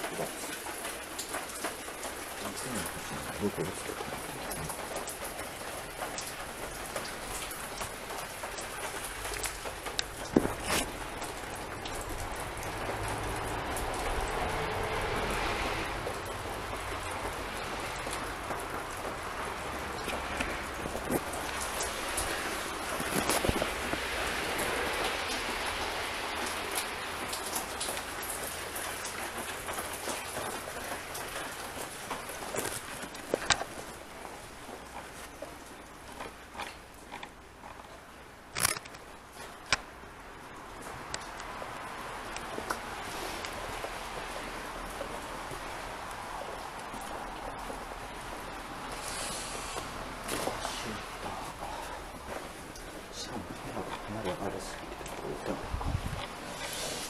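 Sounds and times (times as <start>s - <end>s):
steady rain falling: 0.0s - 57.0s
small clicks: 38.6s - 39.0s
steady hiss: 48.2s - 52.2s.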